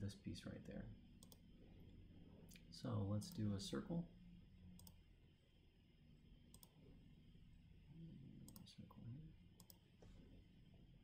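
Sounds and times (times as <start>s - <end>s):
computer mouse clicking: 1.2s - 1.5s, 4.8s - 5.0s, 6.5s - 6.8s, 9.6s - 9.8s.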